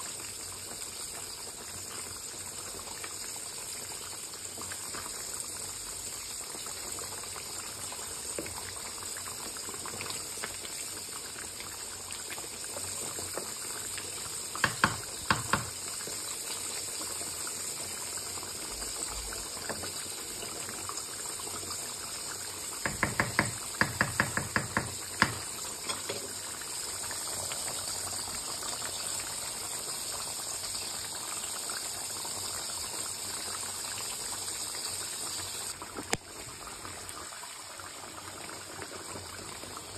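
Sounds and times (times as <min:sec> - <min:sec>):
sauce simmering in a wok: 0:00.0 - 0:39.9
wooden spatula knocking pan: 0:14.6 - 0:15.8, 0:22.8 - 0:26.3.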